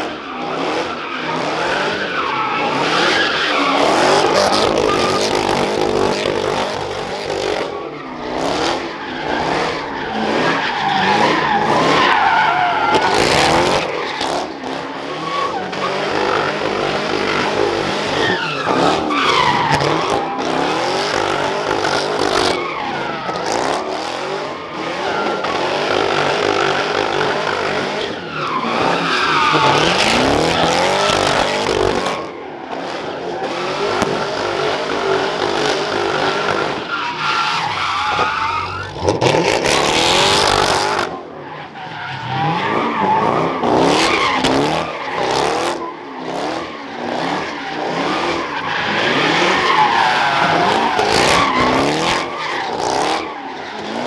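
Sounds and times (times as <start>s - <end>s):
car engines revving hard: 0.0s - 54.0s
tyres screeching: 24.5s - 32.2s, 35.9s - 45.4s.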